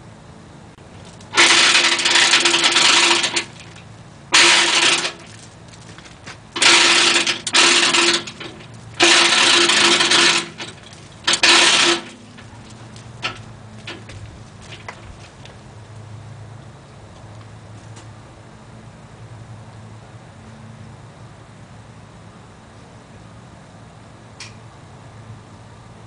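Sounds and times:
hoist chain rattling: 0:01.1 - 0:15.2.

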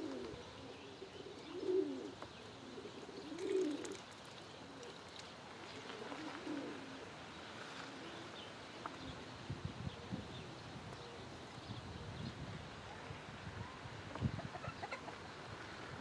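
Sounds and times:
pigeons cooing: 0:00.0 - 0:12.3.

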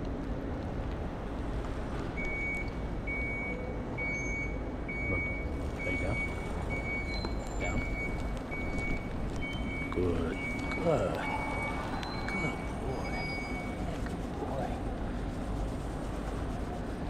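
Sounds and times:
low engine rumble: 0:00.0 - 0:17.0
vehicle backup alarm beeping: 0:02.2 - 0:13.9.

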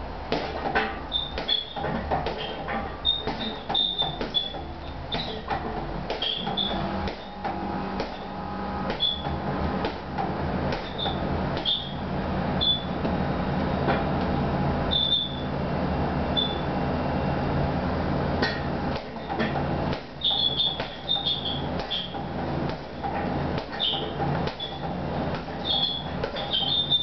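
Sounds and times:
steady low hum: 0:00.0 - 0:27.0
punches thudding on heavy bag: 0:00.3 - 0:12.0, 0:18.4 - 0:27.0.

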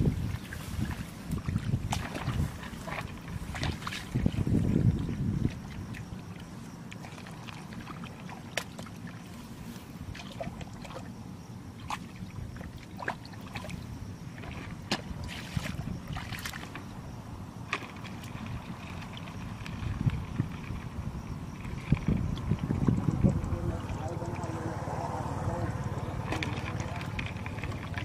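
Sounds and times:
hands sloshing in muddy water: 0:00.0 - 0:17.0
small splashes and drips: 0:00.3 - 0:09.5, 0:10.1 - 0:11.1, 0:11.7 - 0:16.8.

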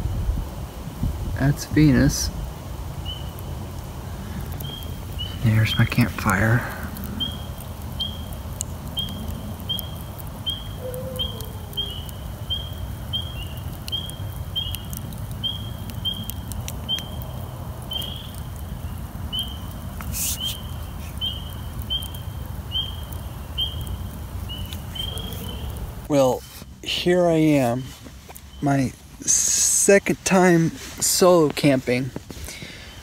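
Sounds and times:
campfire crackling: 0:00.0 - 0:33.0
frogs peeping: 0:03.0 - 0:26.1
fire pop: 0:03.0 - 0:26.7.

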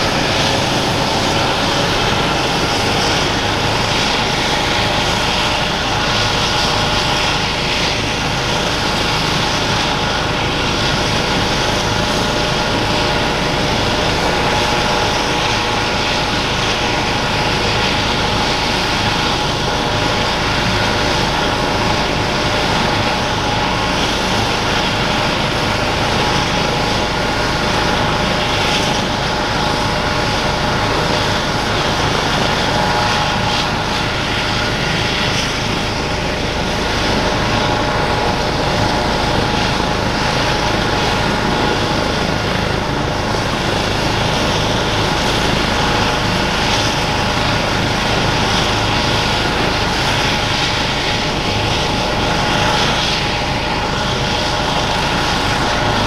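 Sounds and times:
helicopter rotor noise: 0:00.0 - 0:56.0
helicopter turbine whine: 0:00.0 - 0:56.0.

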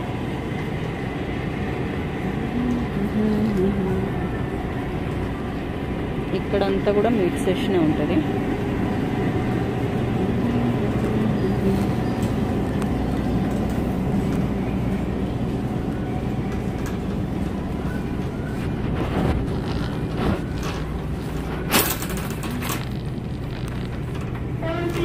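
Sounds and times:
steady low hum: 0:00.0 - 0:25.0
shopping cart rolling: 0:09.2 - 0:25.0.

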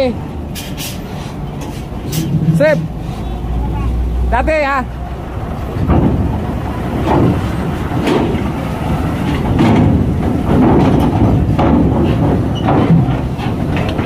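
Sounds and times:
truck diesel engine running: 0:00.0 - 0:14.0
metallic clanks and rattles: 0:00.5 - 0:03.0, 0:05.6 - 0:14.0.

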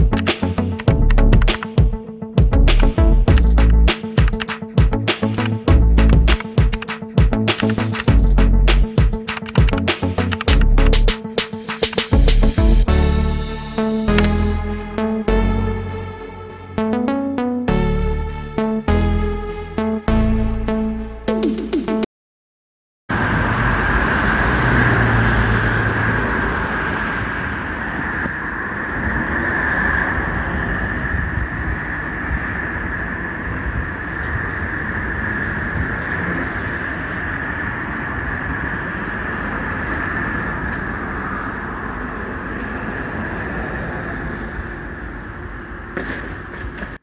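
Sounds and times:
road traffic noise: 0:00.0 - 0:02.1, 0:02.7 - 0:15.2, 0:23.1 - 0:47.0
music jingle: 0:00.0 - 0:22.1
high-pitched whine: 0:10.5 - 0:20.7.

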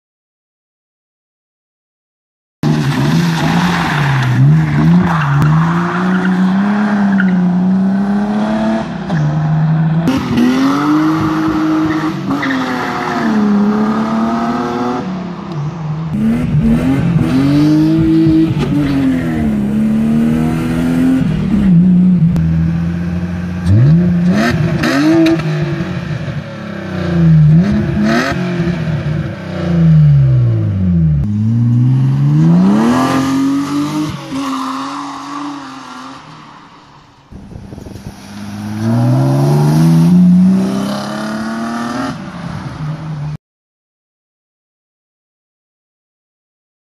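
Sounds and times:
car engine revving: 0:02.6 - 0:36.4, 0:37.3 - 0:42.8.

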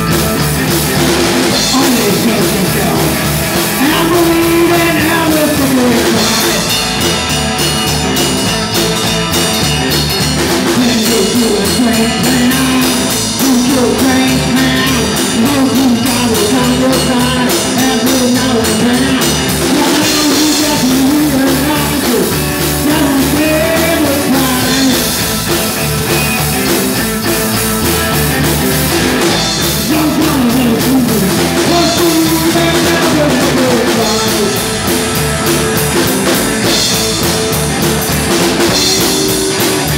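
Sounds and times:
drum kit: 0:00.0 - 0:39.9
guitar: 0:00.0 - 0:39.9
upright double bass: 0:00.0 - 0:39.9
man singing: 0:01.1 - 0:06.9, 0:10.5 - 0:25.3, 0:29.2 - 0:35.2.

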